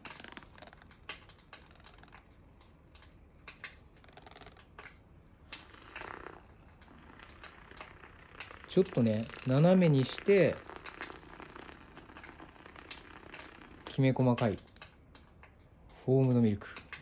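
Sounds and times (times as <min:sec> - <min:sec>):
frothy hiss: 0:05.6 - 0:14.0.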